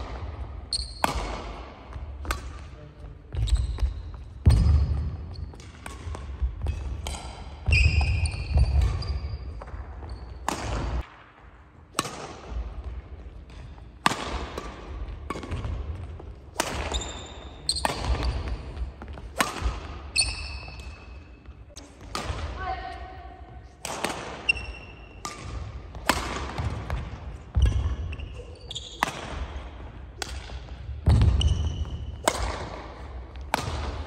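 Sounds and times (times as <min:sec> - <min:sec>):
racket striking shuttlecock: 0:00.0 - 0:02.6, 0:04.4 - 0:09.0, 0:10.4 - 0:11.3, 0:11.9 - 0:22.5, 0:23.8 - 0:28.0, 0:29.0 - 0:29.6, 0:30.2 - 0:34.0
shoe squeaks: 0:00.7 - 0:01.1, 0:03.4 - 0:04.3, 0:07.7 - 0:10.4, 0:16.9 - 0:18.5, 0:20.1 - 0:21.5, 0:24.4 - 0:25.2, 0:27.6 - 0:29.1, 0:31.4 - 0:32.2.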